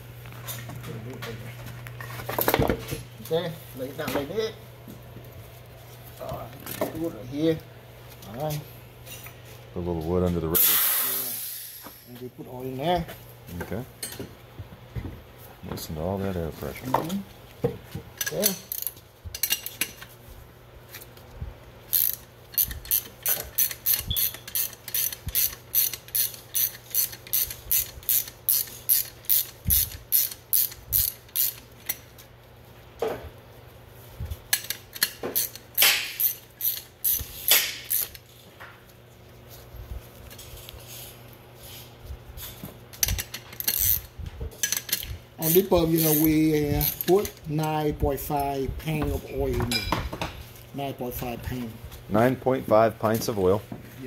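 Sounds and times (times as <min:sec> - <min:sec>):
ratchet wrench clicking: 0:18.2 - 0:19.8, 0:21.9 - 0:32.0, 0:34.5 - 0:38.2, 0:43.0 - 0:47.4.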